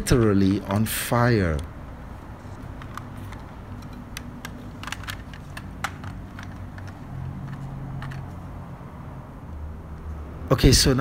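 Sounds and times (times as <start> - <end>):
plastic toy clicks and taps: 2.6 - 8.3.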